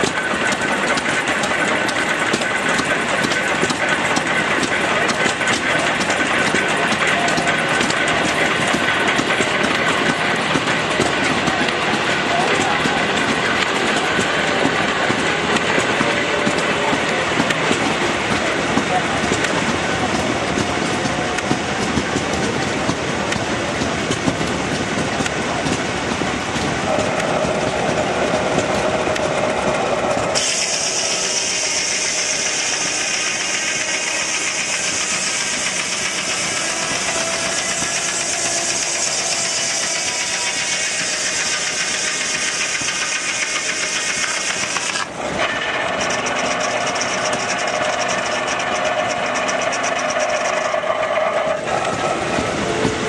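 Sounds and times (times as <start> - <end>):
fast rattling: 0.0 - 53.0
saw blade humming: 26.9 - 53.0
saw cutting log hiss: 30.4 - 51.2.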